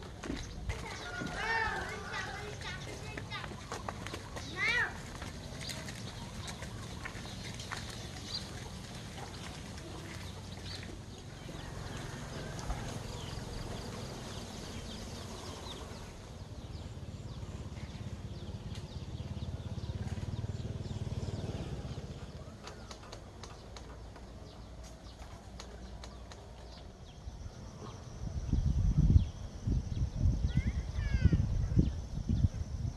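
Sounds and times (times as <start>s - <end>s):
birds chirping: 0.0s - 32.9s
wind buffeting microphone: 27.1s - 32.9s.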